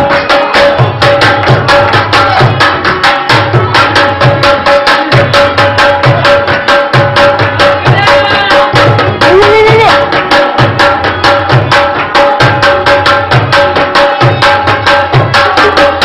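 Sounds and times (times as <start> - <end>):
dance music: 7.8 - 10.2.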